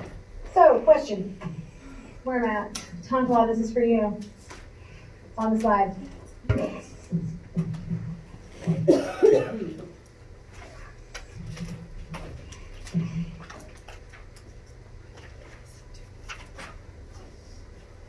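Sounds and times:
faint clicks and taps: 0:05.4 - 0:08.8.

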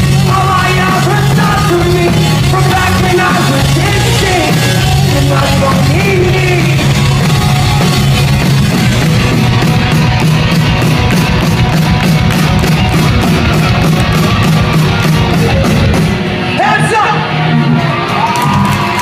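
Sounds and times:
person singing: 0:00.0 - 0:07.7
crowd voices: 0:00.0 - 0:19.0
electric guitars: 0:00.0 - 0:19.0.

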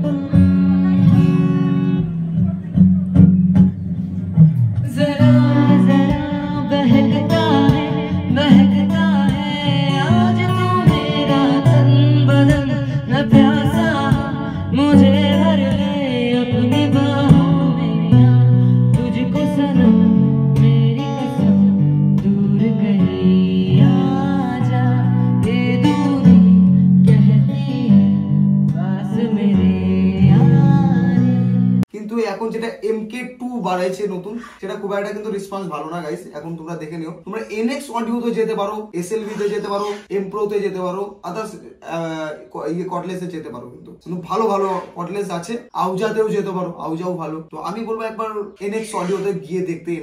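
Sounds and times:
instrumental backing music: 0:00.0 - 0:31.9
man singing into microphone: 0:04.8 - 0:28.0, 0:28.7 - 0:31.5.

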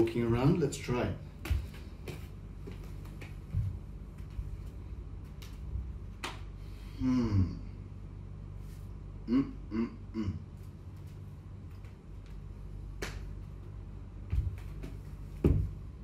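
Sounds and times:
man grunting: 0:07.0 - 0:07.8, 0:09.2 - 0:10.5.

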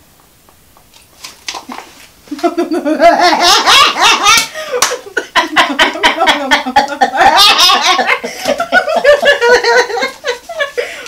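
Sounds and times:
women laughing and shrieking: 0:02.8 - 0:10.9.

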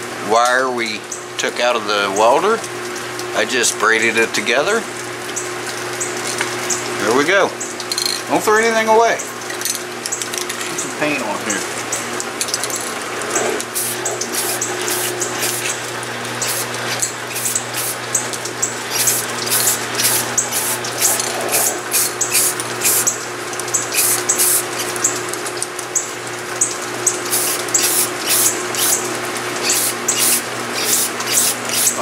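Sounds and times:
steady low hum: 0:13.2 - 0:25.0
spray can hissing bursts: 0:13.8 - 0:15.8, 0:16.4 - 0:18.0, 0:18.9 - 0:23.1, 0:23.9 - 0:24.8, 0:27.3 - 0:29.0, 0:29.6 - 0:32.0.

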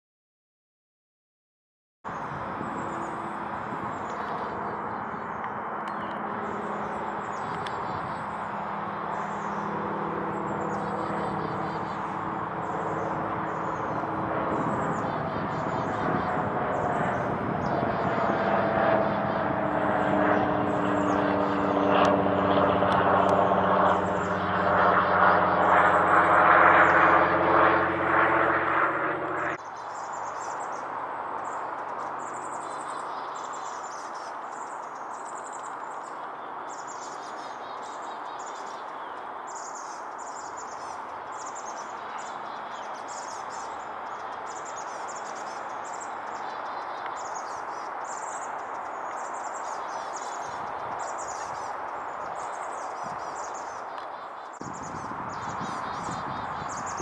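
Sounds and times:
small birds chirping: 0:02.1 - 0:57.0
loud engine drone: 0:02.2 - 0:29.6.

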